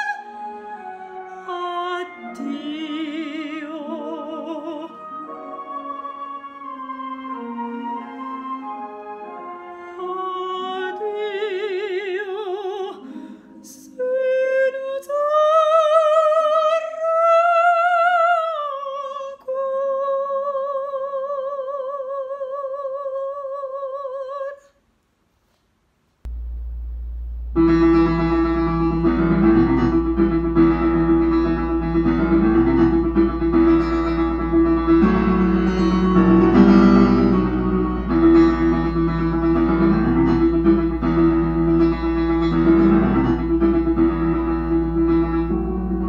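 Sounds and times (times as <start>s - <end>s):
soprano singing opera: 0.0s - 24.7s
low hum: 26.3s - 34.7s
piano accompaniment: 26.3s - 46.0s
piano music: 26.3s - 46.0s.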